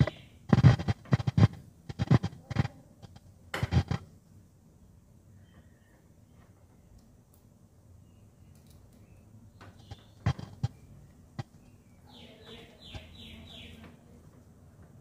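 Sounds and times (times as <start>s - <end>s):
bird calling: 0.0s - 1.2s, 9.1s - 13.9s.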